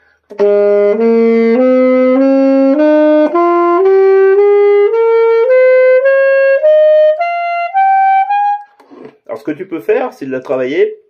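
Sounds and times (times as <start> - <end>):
saxophone playing ascending scale: 0.3 - 9.1.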